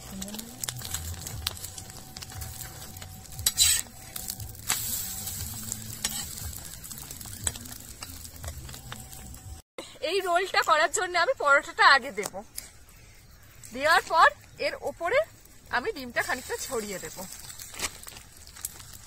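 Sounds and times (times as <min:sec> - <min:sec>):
egg sizzling on a pan: 0:00.0 - 0:09.6, 0:13.0 - 0:19.0
metal spatula scraping pan: 0:03.4 - 0:05.4, 0:06.0 - 0:06.6.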